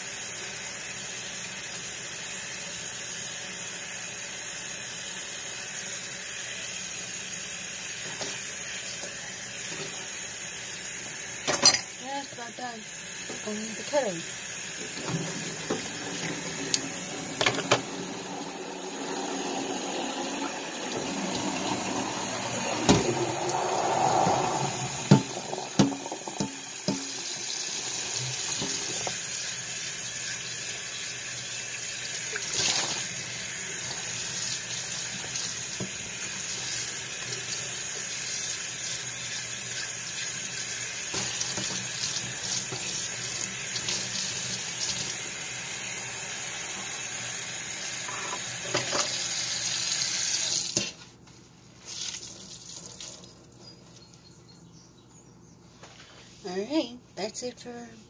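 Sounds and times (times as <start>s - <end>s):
tap running into sink: 14.6s - 18.6s, 19.2s - 23.5s, 24.6s - 29.2s, 41.1s - 45.2s, 48.0s - 49.3s.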